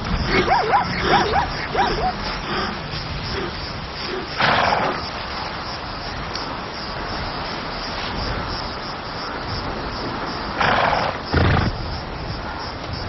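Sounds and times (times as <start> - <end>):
outdoor background hiss: 0.0 - 13.0
lion cubs mewing: 0.3 - 5.0.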